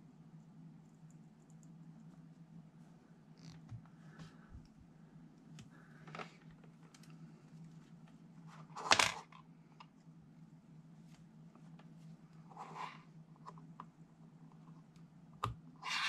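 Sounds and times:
steady low hum: 0.0s - 15.8s
cables being handled: 5.4s - 8.9s.

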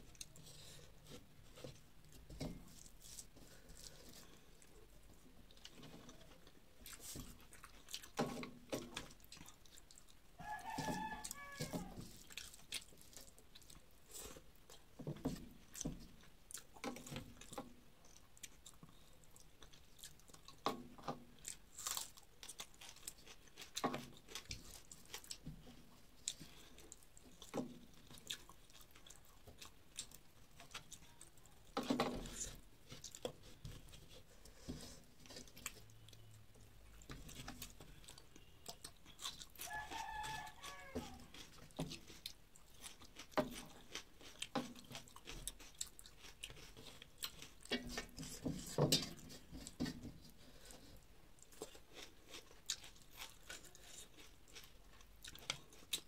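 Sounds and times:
chewing and lip smacks: 6.8s - 10.2s, 26.2s - 31.5s, 35.3s - 48.4s, 50.6s - 56.0s
rooster crowing: 10.4s - 12.0s, 39.6s - 41.3s.

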